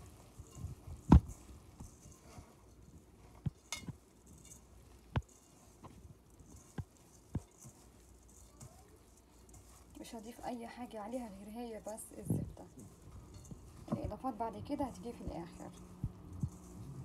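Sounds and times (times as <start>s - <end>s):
rustling of dough strands: 0.0s - 17.0s
knocks and clinks against metal bowl: 3.4s - 4.6s, 11.9s - 17.0s.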